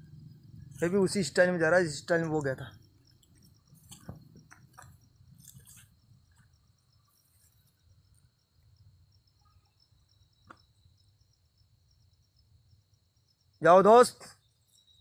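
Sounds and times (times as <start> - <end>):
crickets chirping: 0.0 - 15.0
soft rustles: 3.2 - 6.5.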